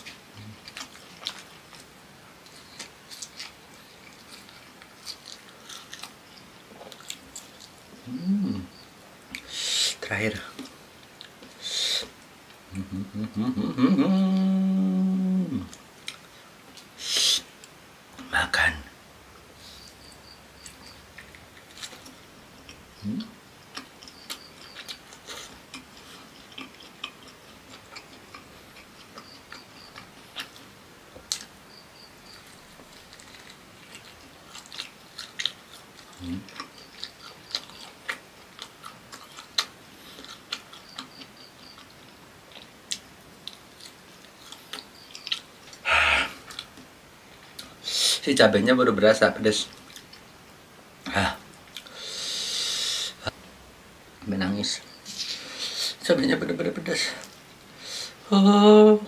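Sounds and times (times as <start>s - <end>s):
person chewing food: 0.0s - 9.6s, 15.6s - 17.8s, 19.7s - 47.9s, 49.7s - 50.4s, 51.5s - 52.0s.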